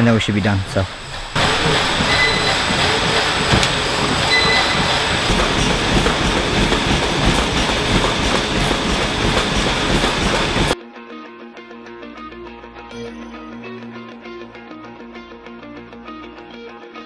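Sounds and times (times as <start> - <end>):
treadmill running noise: 0.0 - 10.8
footfalls on treadmill: 1.4 - 8.8
short beeps: 3.5 - 4.8.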